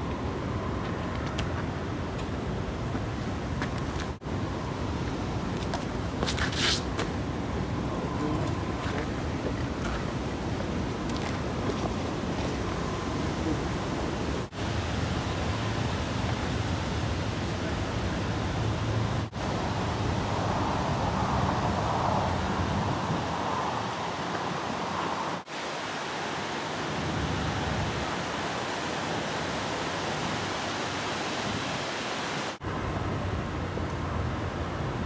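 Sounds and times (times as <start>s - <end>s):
wind on microphone: 18.3s - 25.5s.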